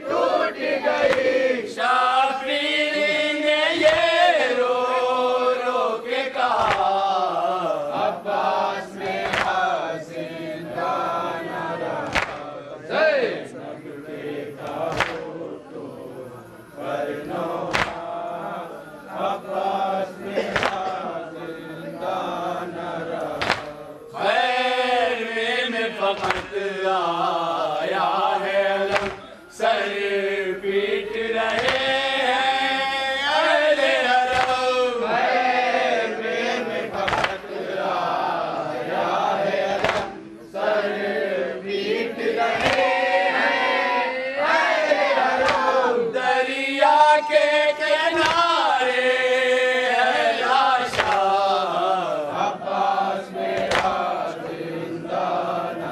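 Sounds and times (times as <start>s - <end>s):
men chanting a lament: 0.0s - 55.9s
hands slapping on chests: 1.0s - 1.4s, 3.8s - 4.1s, 6.5s - 7.2s, 9.1s - 9.7s, 12.0s - 12.5s, 14.6s - 15.4s, 17.6s - 18.4s, 20.4s - 21.0s, 23.1s - 23.8s, 26.1s - 26.6s, 28.8s - 29.3s, 31.4s - 32.0s, 34.2s - 34.7s, 36.9s - 37.5s, 39.7s - 40.2s, 42.5s - 43.0s, 45.2s - 45.8s, 48.2s - 48.6s, 50.8s - 51.5s, 53.5s - 54.6s.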